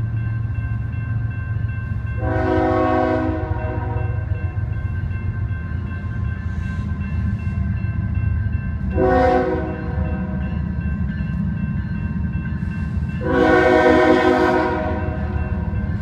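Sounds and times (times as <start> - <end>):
crossing bells ringing: 0.0 - 16.0
locomotive air horn blasts: 2.2 - 4.4, 8.9 - 10.3, 13.2 - 15.2.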